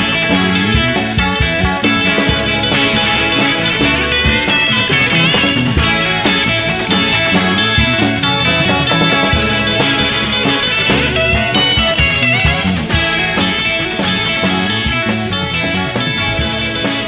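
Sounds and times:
psychedelic rock guitars and drums: 0.0 - 17.0.

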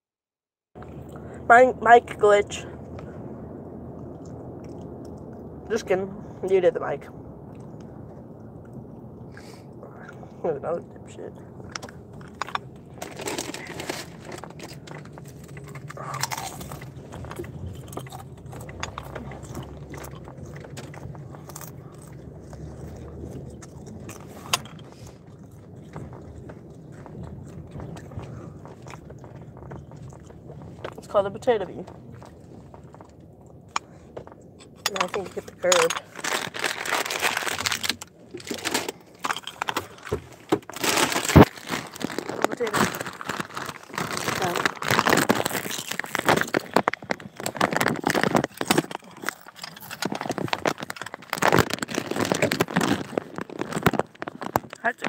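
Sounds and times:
low steady hum: 0.8 - 55.0
potato chips crunched and chewed: 11.4 - 31.2, 34.7 - 55.0.

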